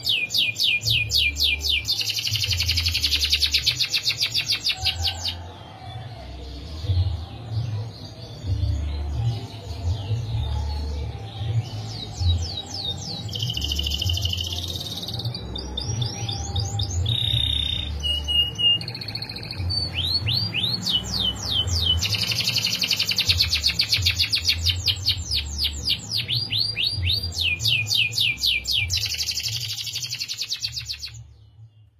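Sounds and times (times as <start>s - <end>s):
canary singing: 0.0s - 31.9s.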